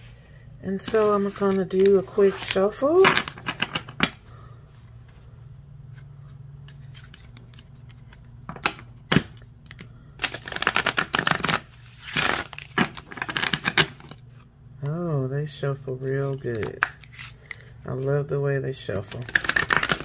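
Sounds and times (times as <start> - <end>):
cards riffling: 6.6 - 8.8, 9.7 - 14.4, 19.1 - 20.0.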